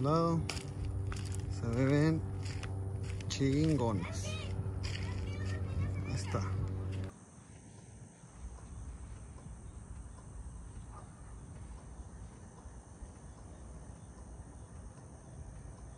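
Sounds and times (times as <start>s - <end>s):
low rumble: 0.0s - 7.1s
crickets chirring: 0.0s - 15.9s.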